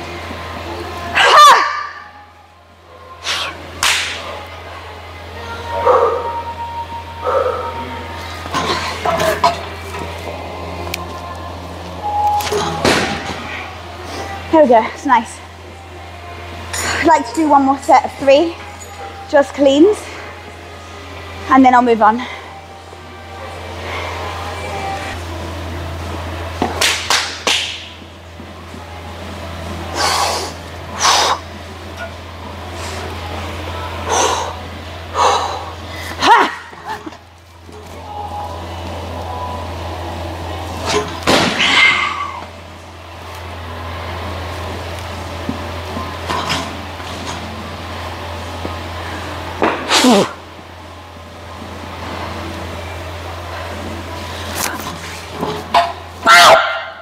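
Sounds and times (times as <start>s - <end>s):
steady low hum: 0.0s - 57.0s
sharp slaps: 3.8s - 4.2s, 26.7s - 27.9s.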